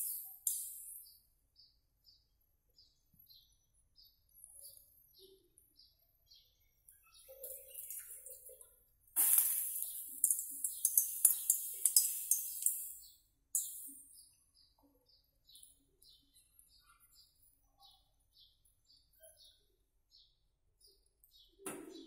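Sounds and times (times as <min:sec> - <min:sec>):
bird chirping: 0:00.0 - 0:22.0
water sizzling on hot iron: 0:09.2 - 0:13.0.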